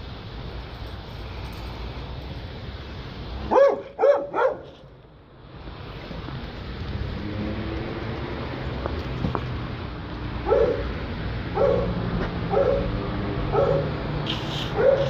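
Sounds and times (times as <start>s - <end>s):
dog barking: 3.5s - 4.8s, 10.4s - 14.0s, 14.7s - 15.0s.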